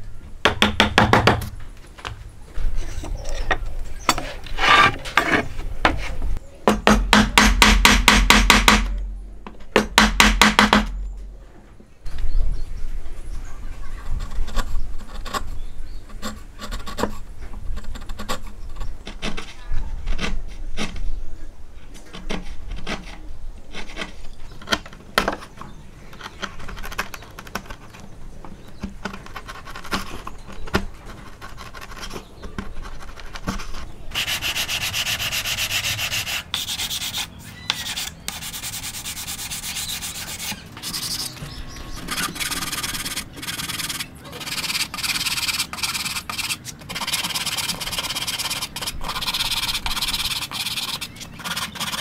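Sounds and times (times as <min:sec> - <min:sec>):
scratchy rubbing on wood: 0:29.0 - 0:52.0.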